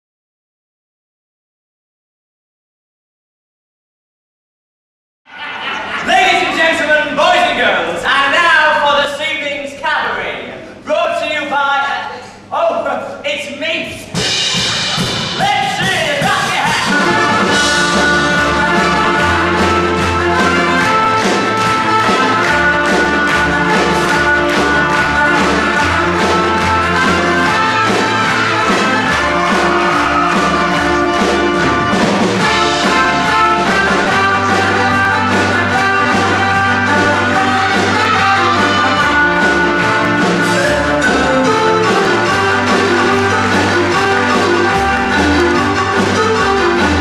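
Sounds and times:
upbeat music with bass line: 14.2 - 47.0.

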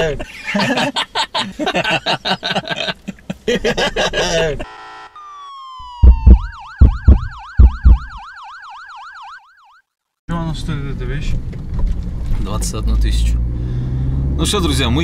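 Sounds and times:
men laughing and chattering: 0.0 - 4.7
yelping siren-like wail: 4.6 - 9.8
falling electronic tones: 4.7 - 9.8
heavy bass thumps: 6.0 - 8.2.

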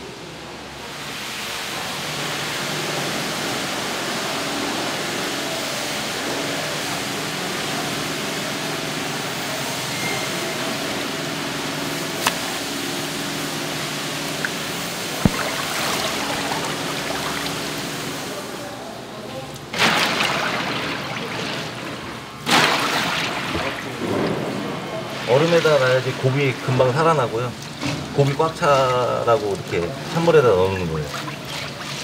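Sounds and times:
running water splashing: 11.8 - 32.0.

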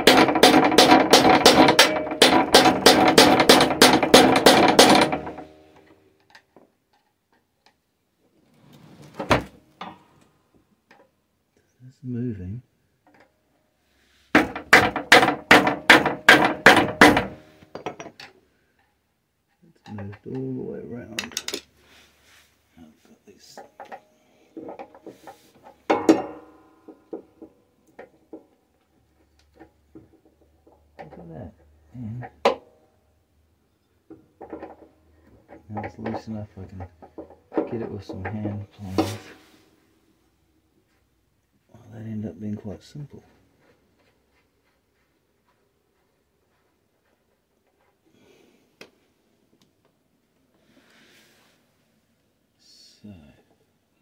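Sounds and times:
hammer striking metal: 0.0 - 5.6, 14.4 - 18.1
metal ringing: 0.0 - 5.6, 25.8 - 27.1
metal tools clinking and knocking: 15.9 - 18.4, 21.1 - 21.7
ringing metallic clang: 25.9 - 27.0.

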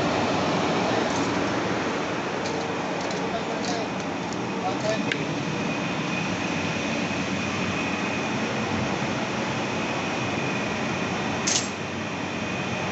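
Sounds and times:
machinery noise: 0.0 - 12.9.

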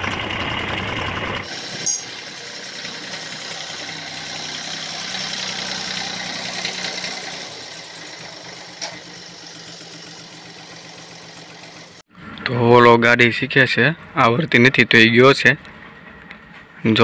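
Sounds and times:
tractor diesel engine running: 0.0 - 12.1.

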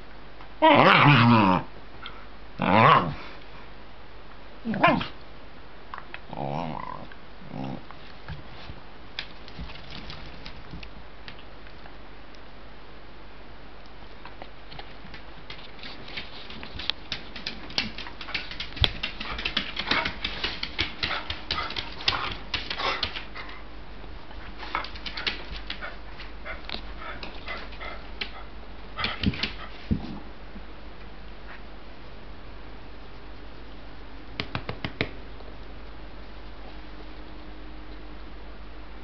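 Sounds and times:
small dog noises: 4.6 - 5.2, 15.8 - 23.6, 24.4 - 30.2
dog claws clicking on wooden floor: 14.7 - 23.6, 24.7 - 28.4, 29.0 - 29.7.

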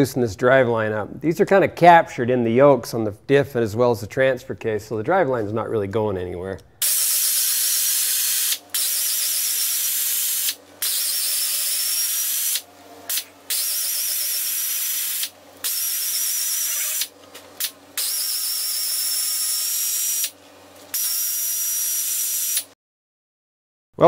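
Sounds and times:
pneumatic air ratchet whining: 6.8 - 22.7.

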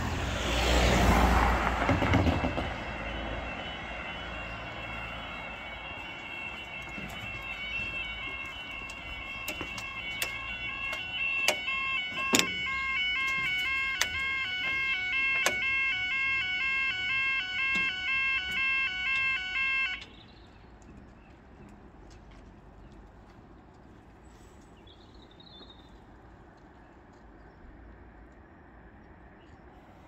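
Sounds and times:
quiet street background: 0.0 - 30.0
two-tone warbling crossing alarm: 1.4 - 20.2.

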